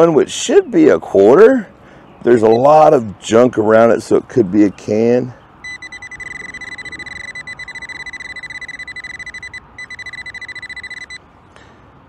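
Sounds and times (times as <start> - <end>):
metal detector pinpointer beeping rapidly: 5.6 - 11.2.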